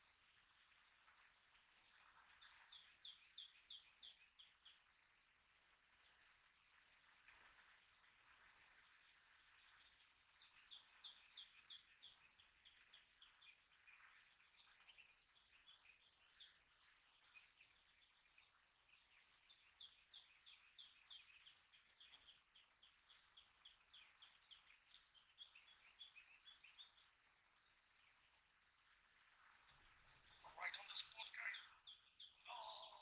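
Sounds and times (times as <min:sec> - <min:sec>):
faint birds chirping: 0:00.0 - 0:33.0.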